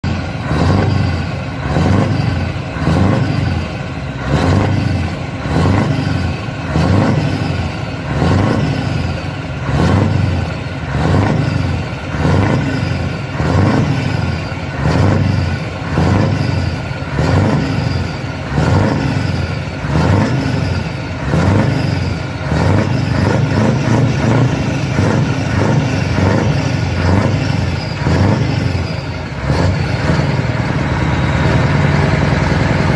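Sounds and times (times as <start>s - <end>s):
diesel engine revving: 0.0s - 32.9s.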